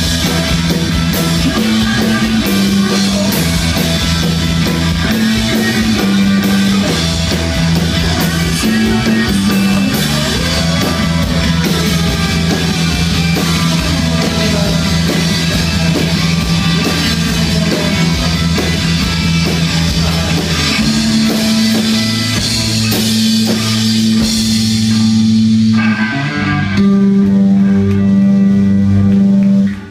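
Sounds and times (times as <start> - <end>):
bass guitar: 0.0 - 29.9
drum kit: 0.0 - 29.9
electric guitar: 0.0 - 29.9.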